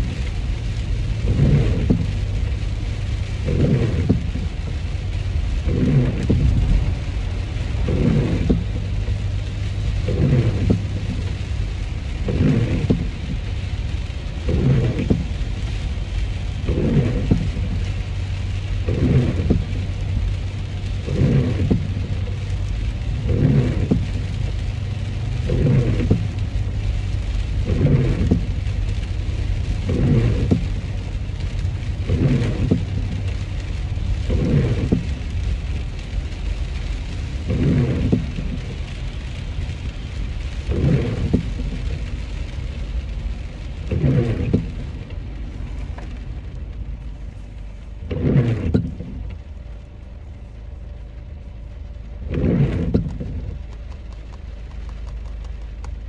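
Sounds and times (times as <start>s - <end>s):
rain on car body: 0.0s - 56.0s
road and engine rumble: 0.0s - 56.0s
windshield wiper sweeping: 0.0s - 56.0s.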